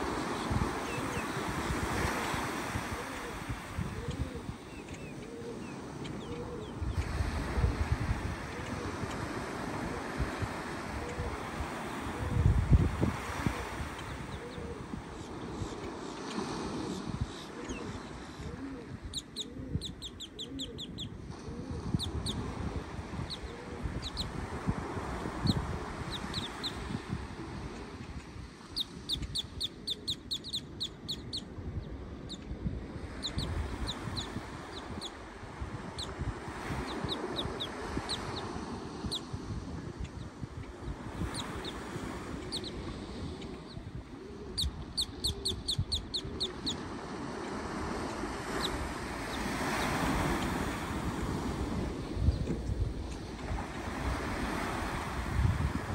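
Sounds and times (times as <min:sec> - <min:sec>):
surf and wind rumble: 0:00.0 - 0:55.9
bird chirping: 0:44.6 - 0:46.8.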